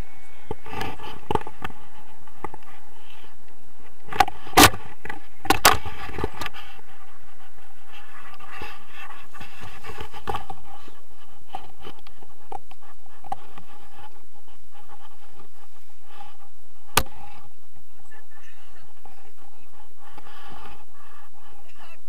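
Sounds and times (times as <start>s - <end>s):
wind rushing over camera: 0.0s - 22.0s
harness and gear scratches: 0.4s - 17.6s.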